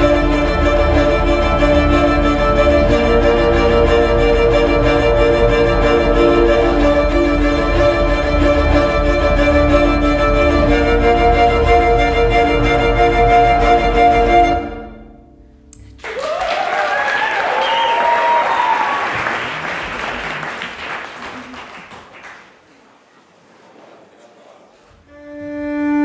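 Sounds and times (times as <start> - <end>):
scratchy bow noise: 0.0 - 15.1, 24.8 - 26.0
cello playing bowed notes: 0.0 - 15.7, 25.0 - 26.0.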